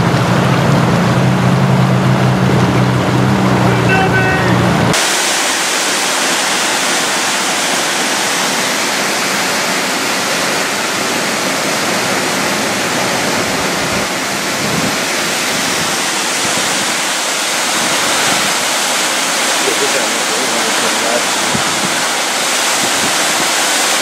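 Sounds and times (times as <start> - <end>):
fast-flowing water rushing: 0.0 - 24.0.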